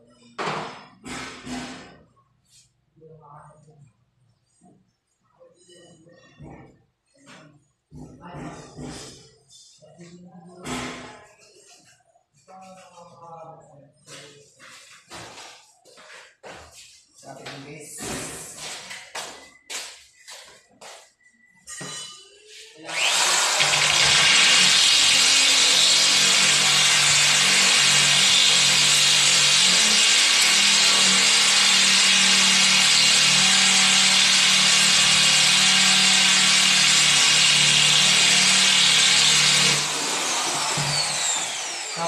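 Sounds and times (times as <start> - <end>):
electric drill running: 22.9 - 42.0.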